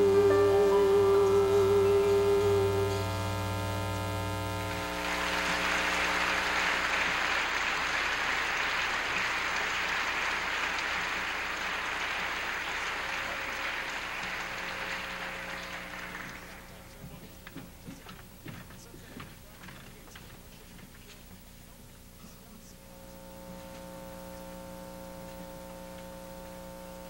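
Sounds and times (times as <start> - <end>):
band chord: 0.0 - 7.4
electrical hum: 0.0 - 27.0
audience applause: 4.5 - 17.5.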